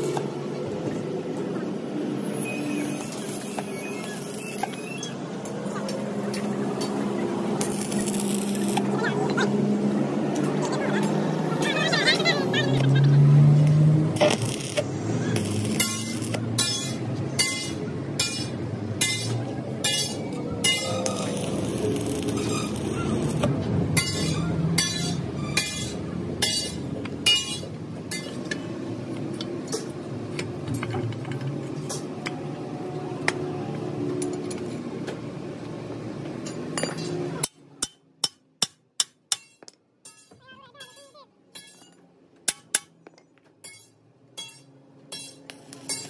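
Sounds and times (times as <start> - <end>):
hammer striking steel: 14.2 - 28.6, 36.8 - 46.0.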